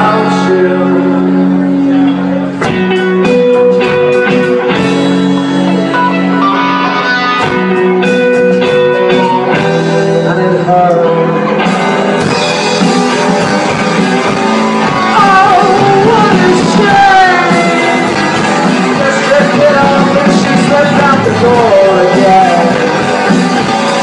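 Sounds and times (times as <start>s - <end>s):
man singing: 0.0s - 1.4s, 10.0s - 11.6s, 15.0s - 23.3s
rock band playing: 0.0s - 24.0s.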